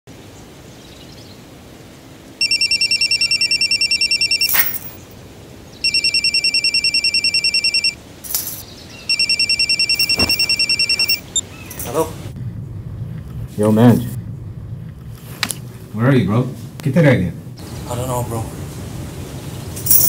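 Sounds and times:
telephone ringing: 2.4 - 5.0, 5.8 - 8.0, 9.0 - 11.4.

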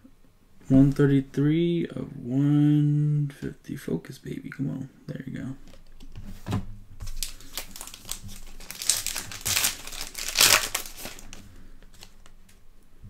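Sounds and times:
foil wrapper tearing and crinkling: 7.0 - 12.3.

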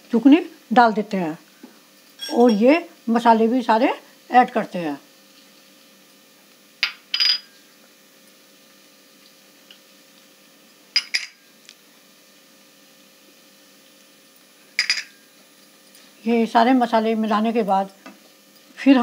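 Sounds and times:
faint steady hum: 0.0 - 19.0
glass bowls clinking: 2.2 - 2.7, 6.8 - 7.6, 11.0 - 11.4, 14.8 - 15.2.

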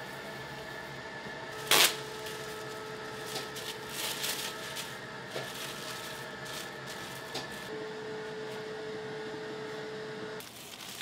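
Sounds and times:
faint electrical hum: 0.0 - 11.0
plastic sheet rustling: 1.6 - 7.7, 10.4 - 11.0.

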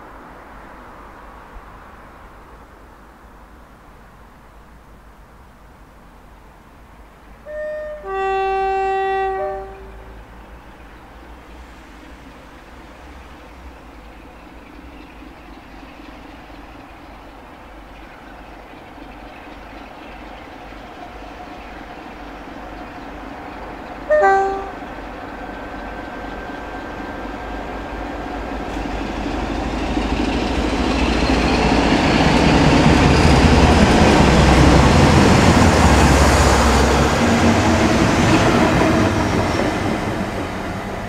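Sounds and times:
two-tone locomotive horn: 7.4 - 10.3, 24.0 - 25.0
diesel locomotive engine under power: 7.5 - 41.0.

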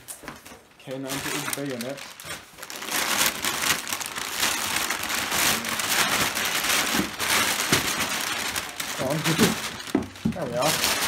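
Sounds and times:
plastic bag crinkling: 0.4 - 11.0.

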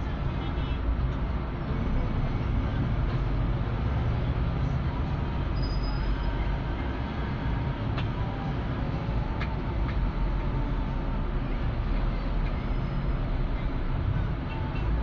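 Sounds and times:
car engine and tyres rumbling: 0.0 - 15.0.

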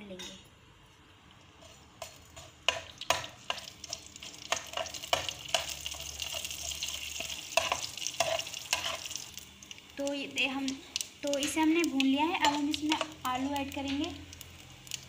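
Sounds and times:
spoon scraping a pan: 1.6 - 9.2
seeds sizzling in hot oil: 1.6 - 15.0.

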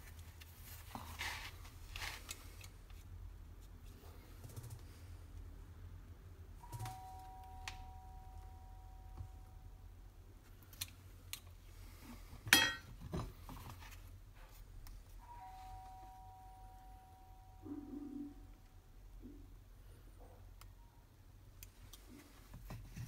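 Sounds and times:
sharp metallic clack: 12.5 - 12.9.

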